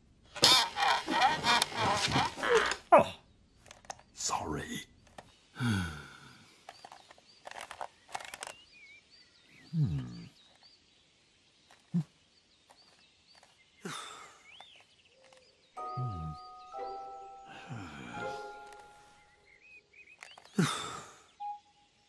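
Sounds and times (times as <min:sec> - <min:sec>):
faint birds chirping: 0:00.0 - 0:22.0
small clicks: 0:03.6 - 0:04.2, 0:06.6 - 0:08.7, 0:11.6 - 0:15.7, 0:20.0 - 0:21.0.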